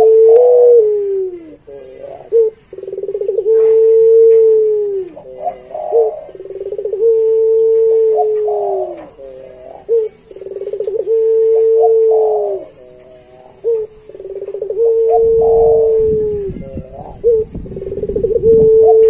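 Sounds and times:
dove cooing: 0.0 - 19.0.

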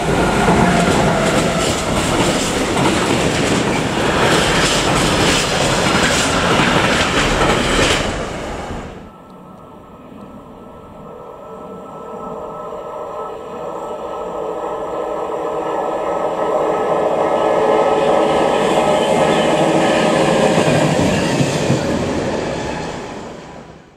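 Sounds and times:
train wheels clattering on rails: 0.0 - 8.6
railcar diesel engine: 0.0 - 23.9.

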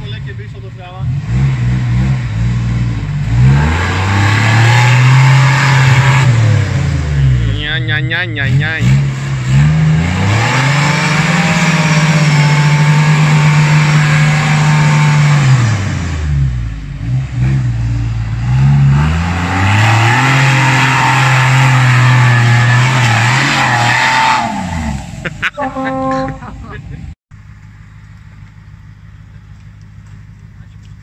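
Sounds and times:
engine revving hard: 0.0 - 26.5.

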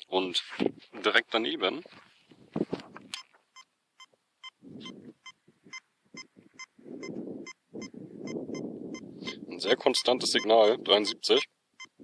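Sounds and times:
metal detector beeping: 3.1 - 12.0.

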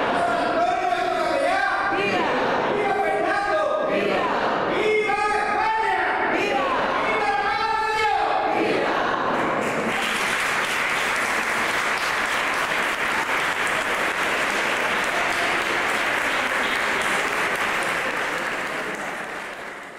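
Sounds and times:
congregation applauding: 9.3 - 19.9.

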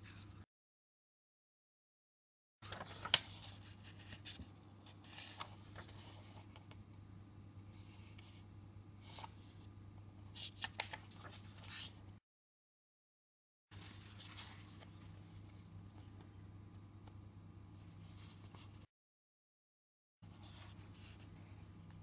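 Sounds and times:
book pages turning: 2.6 - 6.8, 9.0 - 9.6, 10.4 - 12.0, 13.8 - 15.0.

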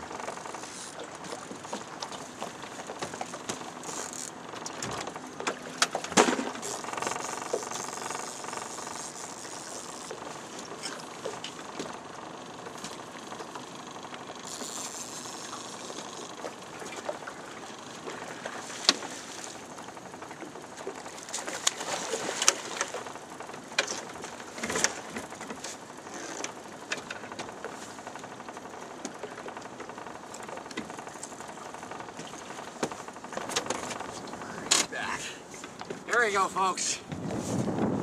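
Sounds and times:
knocks and clatter on boat deck: 0.0 - 36.2, 37.0 - 38.0.

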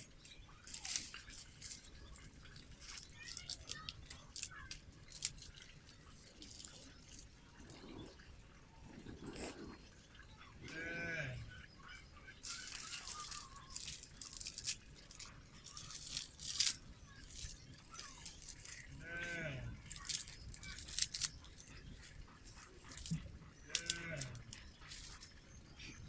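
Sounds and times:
sticks snapping: 0.7 - 5.7, 12.4 - 18.8, 19.9 - 21.7, 22.9 - 25.3
animal calling: 0.7 - 26.0.

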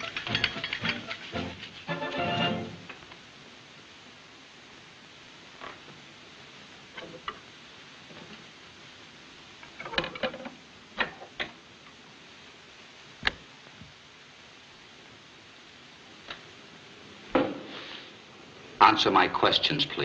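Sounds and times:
steady hiss: 0.0 - 20.0
record player clicks and knocks: 9.7 - 11.6, 13.2 - 13.4.

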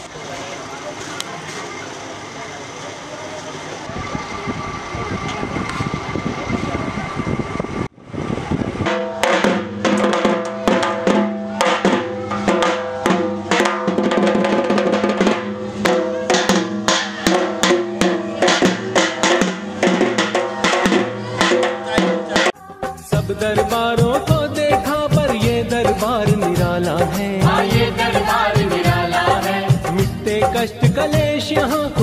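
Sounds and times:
steady background noise: 0.0 - 23.0
barrel drum beaten fast: 8.8 - 32.0.

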